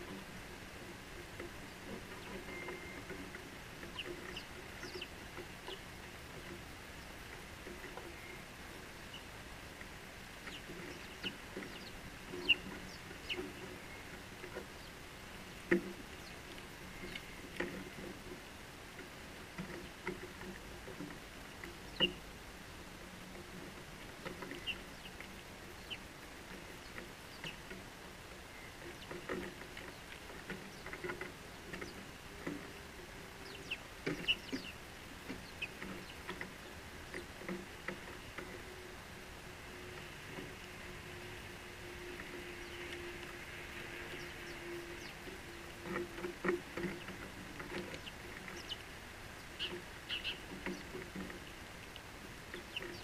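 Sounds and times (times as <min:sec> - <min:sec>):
sparrows chirping: 0:03.8 - 0:05.9, 0:10.4 - 0:17.4, 0:21.8 - 0:22.2, 0:24.4 - 0:26.1, 0:26.8 - 0:27.6, 0:30.7 - 0:31.0, 0:33.4 - 0:34.8, 0:35.4 - 0:36.8, 0:42.5 - 0:43.0, 0:44.0 - 0:45.2, 0:47.9 - 0:51.6, 0:52.5 - 0:53.0.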